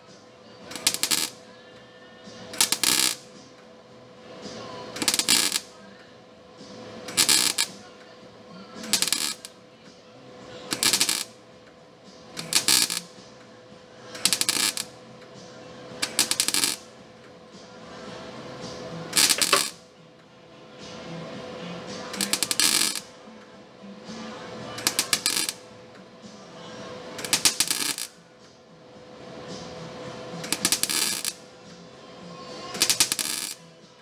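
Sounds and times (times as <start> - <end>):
steady hum: 0.0 - 34.0
welding arc crackling: 0.7 - 1.4, 2.6 - 3.2, 5.0 - 5.7, 7.1 - 7.7, 8.9 - 9.5, 10.8 - 11.3, 12.4 - 13.0, 14.2 - 14.9, 16.0 - 16.8, 19.2 - 19.8, 22.1 - 23.0, 24.8 - 25.6, 27.2 - 28.1, 30.4 - 31.4, 32.8 - 33.6.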